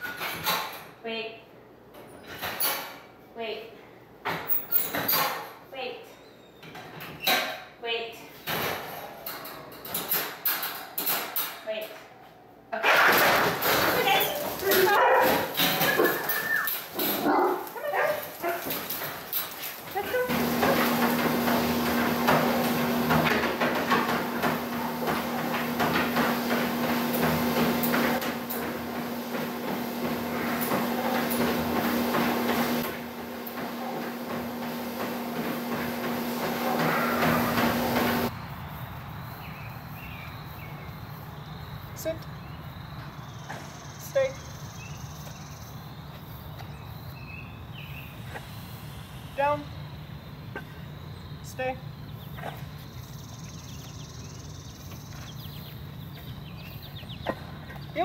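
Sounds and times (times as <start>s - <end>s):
treadmill motor hum and belt whir: 20.0s - 38.3s
small birds chirping: 38.5s - 58.0s.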